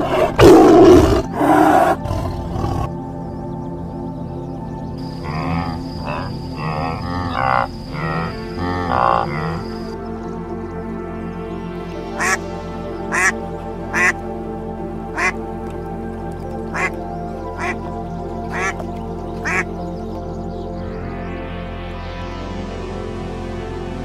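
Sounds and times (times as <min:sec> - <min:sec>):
background music: 0:00.0 - 0:24.0
ducks quacking: 0:05.2 - 0:09.9, 0:12.2 - 0:12.4, 0:13.1 - 0:14.2, 0:15.2 - 0:15.4, 0:16.7 - 0:17.0, 0:17.6 - 0:17.8, 0:18.5 - 0:18.8, 0:19.4 - 0:19.7.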